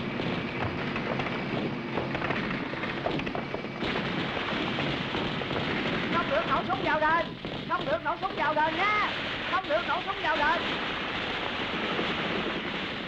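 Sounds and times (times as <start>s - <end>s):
dense battle rumble: 0.0s - 13.0s
gunshots and blasts: 0.0s - 13.0s.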